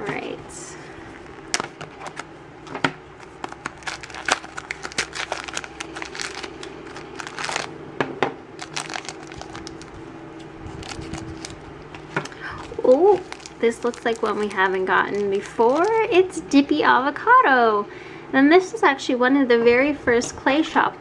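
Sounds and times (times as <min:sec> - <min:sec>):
plastic bag crinkling: 0:03.2 - 0:07.7, 0:08.6 - 0:16.2
plastic packaging clicks and crackles: 0:03.2 - 0:07.7, 0:08.6 - 0:10.0, 0:10.7 - 0:16.0.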